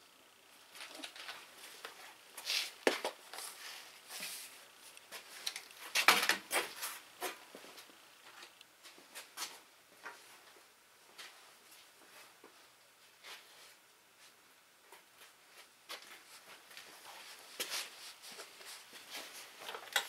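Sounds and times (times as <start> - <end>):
rustling of handled things: 0.2 - 20.0.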